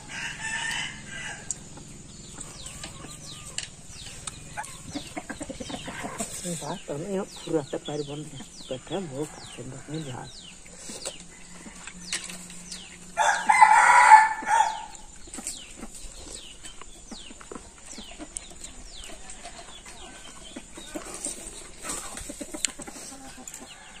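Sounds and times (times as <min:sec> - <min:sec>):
rooster crowing: 0:00.0 - 0:01.6, 0:13.2 - 0:15.1
small birds chirping: 0:00.0 - 0:24.0.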